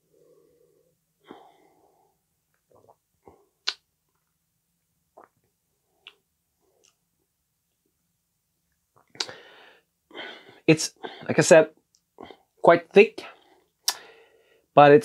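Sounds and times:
man sipping and swallowing: 2.5s - 4.3s, 5.1s - 6.2s
mouth clicks and lip smacks: 3.6s - 4.3s, 5.1s - 6.2s, 8.9s - 9.4s, 13.8s - 14.1s.

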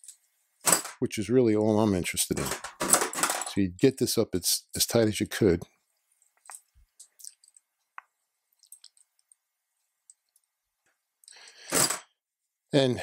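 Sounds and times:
loud breath: 11.3s - 12.0s.

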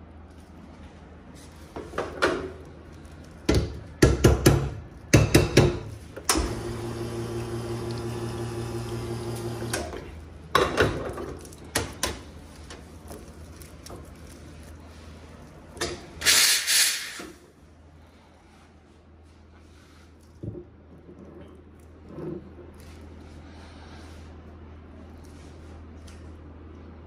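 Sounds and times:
espresso machine pump humming: 6.3s - 10.1s
water running through machine: 6.3s - 10.1s.

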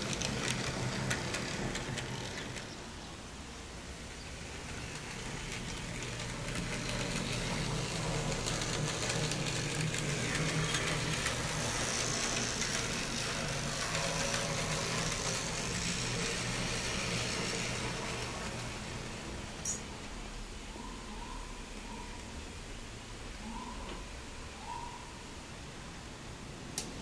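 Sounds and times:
wheel-on-rail clicks: 0.0s - 3.1s, 3.9s - 19.9s
electric motor hum: 4.0s - 19.4s.

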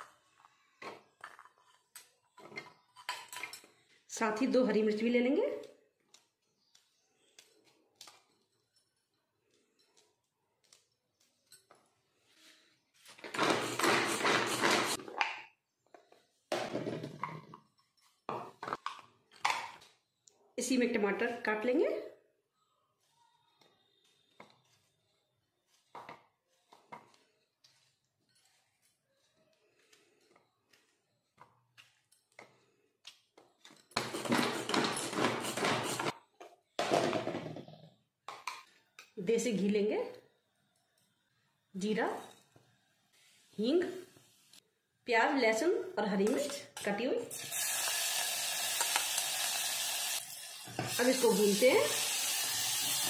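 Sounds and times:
vegetable chopper whirring and rattling: 13.3s - 15.0s.

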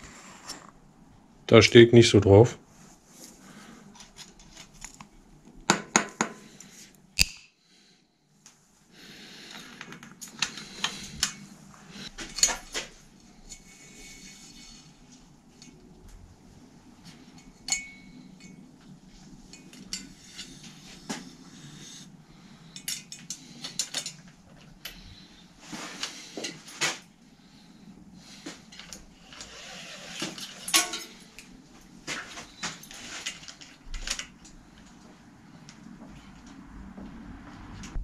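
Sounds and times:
metallic clicks of bike tools: 7.2s - 7.5s, 22.7s - 25.1s.

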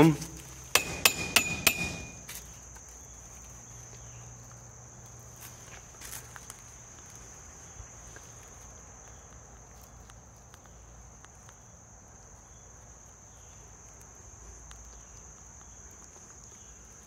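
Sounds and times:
footsteps on concrete floor: 0.1s - 4.6s, 5.2s - 7.4s.

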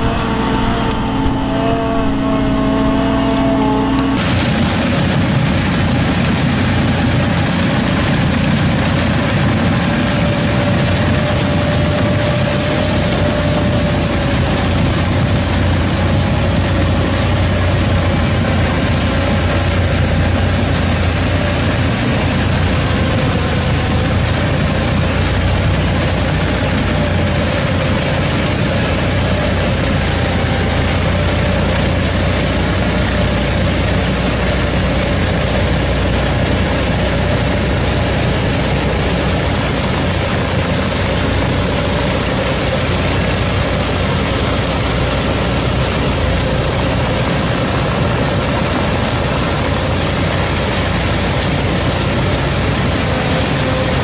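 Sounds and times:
tractor engine under load: 0.0s - 54.0s.

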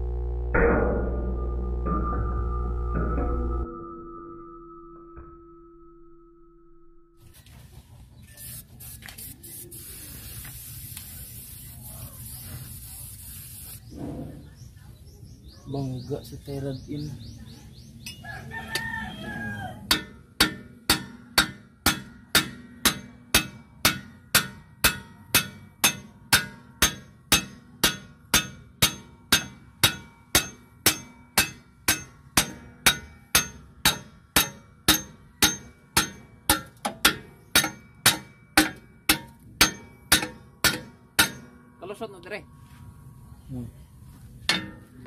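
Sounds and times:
rooster crowing: 18.2s - 19.9s.

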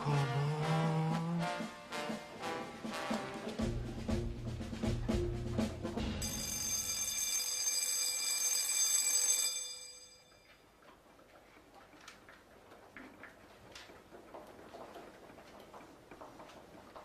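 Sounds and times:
bright ringing tone: 6.2s - 10.6s.

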